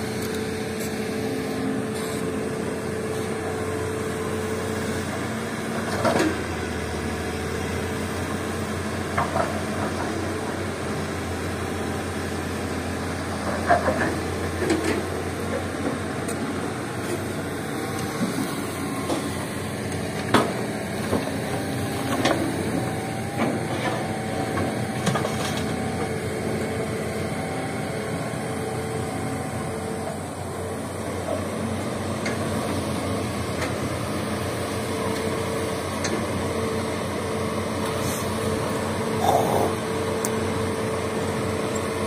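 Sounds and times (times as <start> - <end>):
diesel engines running: 0.0 - 42.0.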